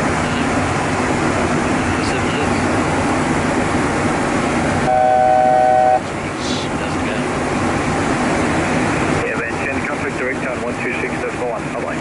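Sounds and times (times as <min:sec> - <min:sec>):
airflow and engine noise: 0:00.0 - 0:12.0
flat electronic tone: 0:04.9 - 0:06.0.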